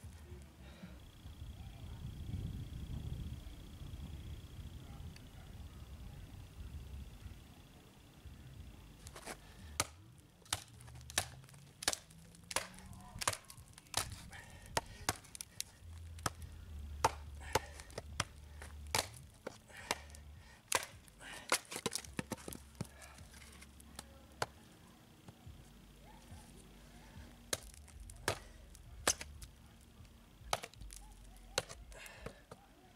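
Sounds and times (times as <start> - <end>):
knife chopping into wood: 9.2 - 15.5, 18.9 - 22.9, 30.5 - 31.0.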